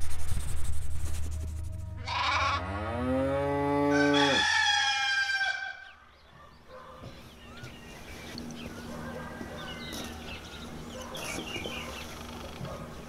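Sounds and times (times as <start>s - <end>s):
cow mooing: 2.0s - 4.7s
rooster crowing: 3.4s - 6.0s.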